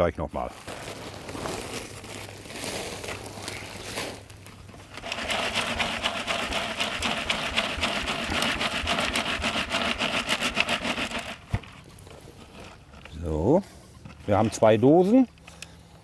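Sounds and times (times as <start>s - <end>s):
soil rattling on sieve mesh: 3.8s - 13.4s.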